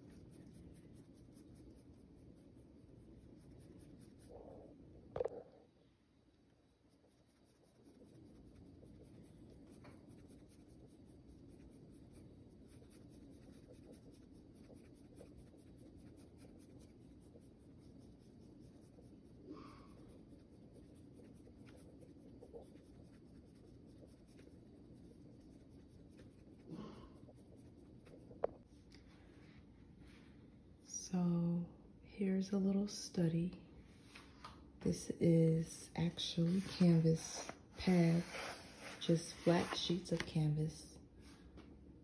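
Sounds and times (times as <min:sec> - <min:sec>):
paintbrush dabbing on canvas: 0:00.0 - 0:05.4, 0:06.3 - 0:28.6.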